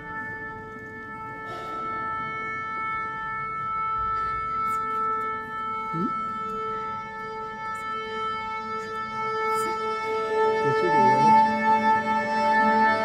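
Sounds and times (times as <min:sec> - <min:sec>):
woodwind holding a long note: 0:00.0 - 0:13.0.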